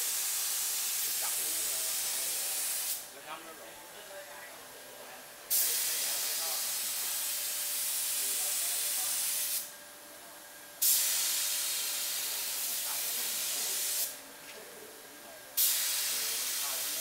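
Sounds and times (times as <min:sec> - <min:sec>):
paint spray gun hissing: 0:00.0 - 0:03.1, 0:05.5 - 0:09.7, 0:10.8 - 0:14.2, 0:15.6 - 0:17.0.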